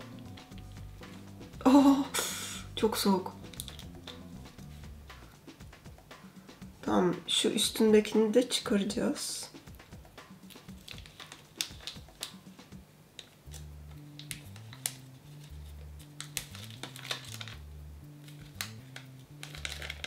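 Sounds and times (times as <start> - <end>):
quiet background music with bass: 0.0 - 20.0
sheet mask peeling crackles: 10.4 - 12.4, 13.5 - 17.6, 18.2 - 20.0.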